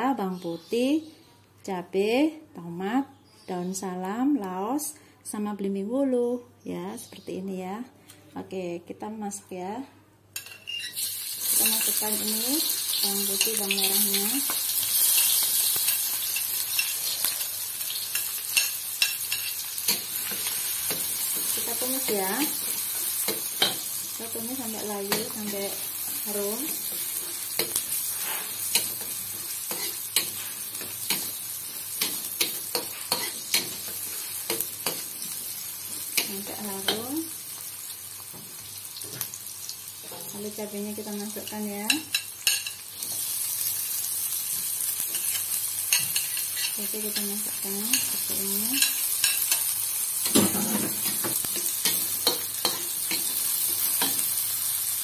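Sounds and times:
spatula scraping and tapping wok: 10.4s - 24.1s, 24.7s - 37.1s, 45.0s - 54.4s
shallots sizzling in oil: 10.4s - 55.0s.

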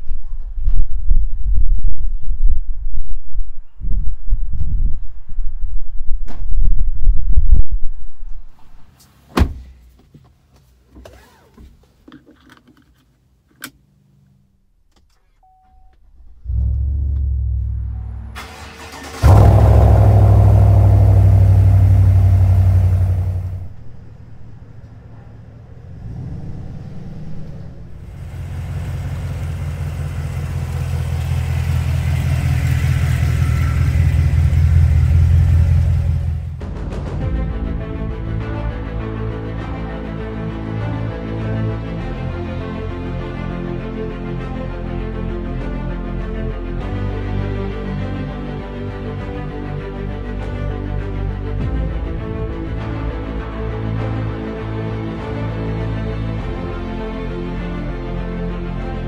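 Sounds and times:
engine starting and running: 16.4s - 25.1s, 25.8s - 36.7s.

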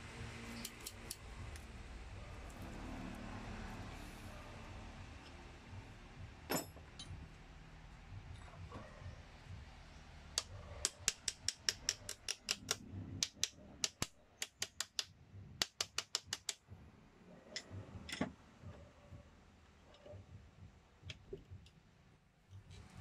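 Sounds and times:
ratchet clicking: 0.5s - 1.6s.

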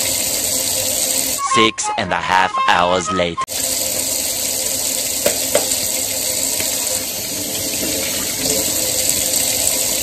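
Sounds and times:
faucet running into a metal sink: 0.0s - 1.4s, 3.5s - 10.0s.

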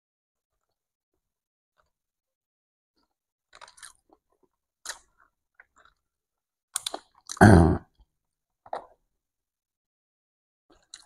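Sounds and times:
chewing: 3.5s - 6.0s, 6.8s - 7.4s, 10.7s - 11.0s.

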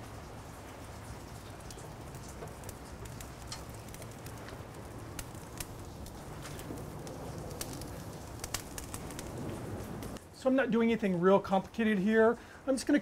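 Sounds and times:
meat sizzling on a grill: 0.0s - 10.2s
sharp crackles: 0.0s - 12.6s.

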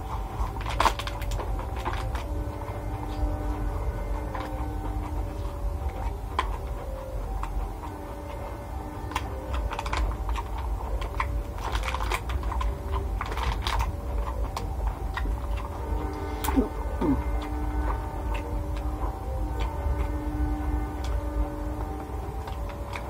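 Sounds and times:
plastic food box clicks and crinkles: 0.0s - 3.4s, 9.0s - 16.6s
steady low hum: 0.0s - 23.0s.

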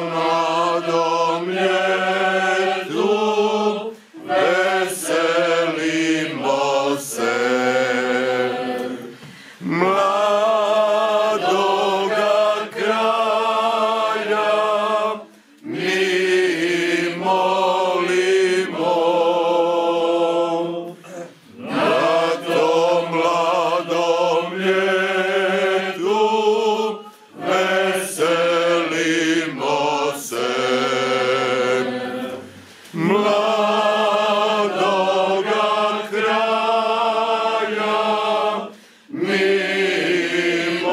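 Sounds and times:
mixed choir singing a cappella: 0.0s - 40.9s.

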